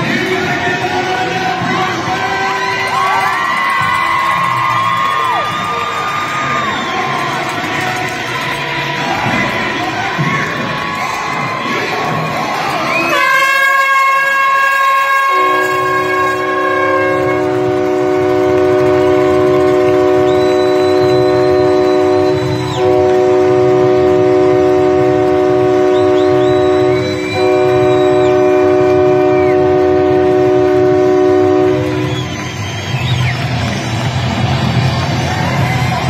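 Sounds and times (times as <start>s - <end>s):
multi-tone air horn: 13.0s - 32.6s.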